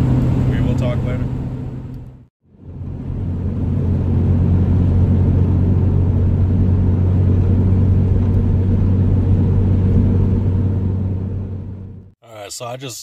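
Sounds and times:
van engine and road noise: 0.0 - 12.2.

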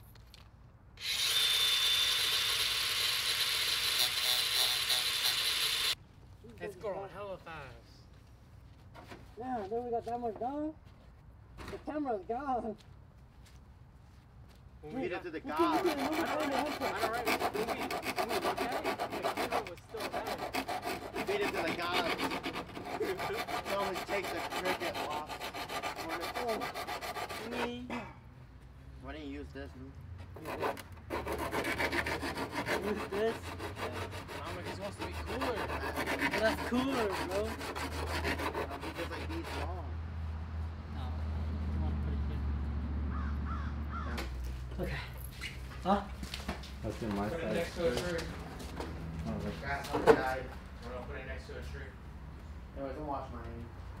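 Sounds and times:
power tool whining: 1.0 - 6.0
rapid hand sanding strokes: 15.0 - 27.8, 30.4 - 39.8.

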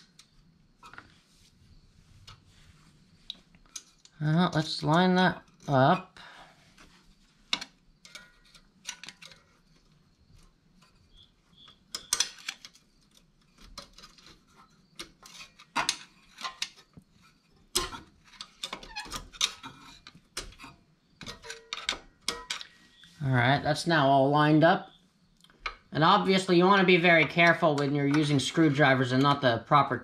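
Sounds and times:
screwdrivers clicking and scraping metal: 3.3 - 6.1, 7.4 - 23.1, 25.4 - 29.5.

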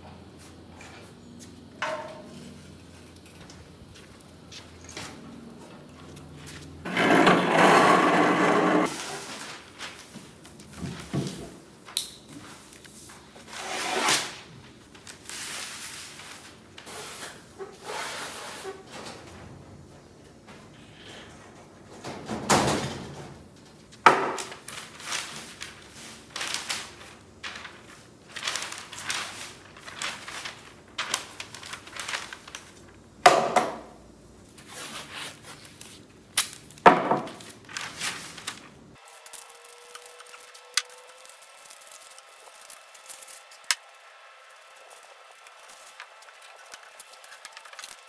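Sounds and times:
paper rustling and crackling: 5.9 - 13.6, 14.2 - 17.4, 23.6 - 33.1, 34.5 - 48.0.

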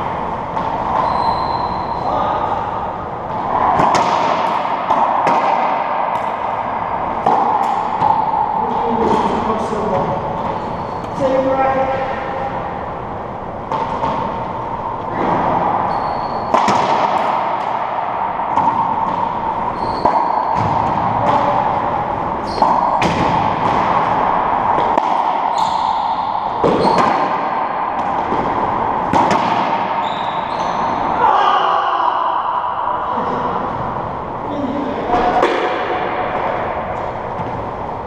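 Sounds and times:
racquetball hits echoing: 0.0 - 38.0
sneakers squeaking on hardwood: 1.0 - 2.0, 15.9 - 16.6, 19.7 - 20.6, 22.4 - 23.1, 25.5 - 26.1, 26.7 - 27.0, 30.0 - 31.0.

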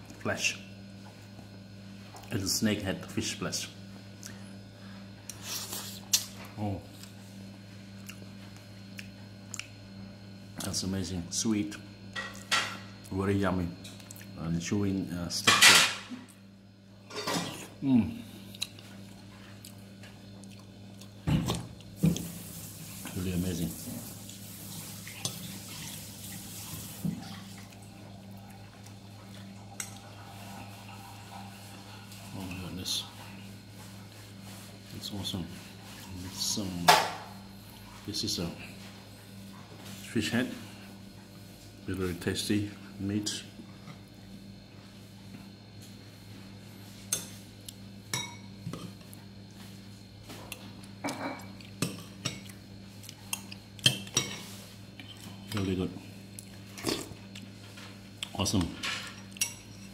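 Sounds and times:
low steady hum: 0.0 - 59.9
wet eating sounds: 5.2 - 7.2, 7.9 - 9.8, 13.8 - 14.4, 18.2 - 23.2, 24.1 - 35.0.

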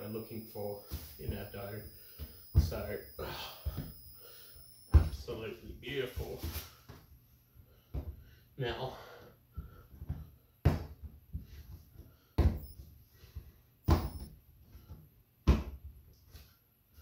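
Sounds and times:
sharp thumps: 0.0 - 5.2, 13.9 - 14.3.

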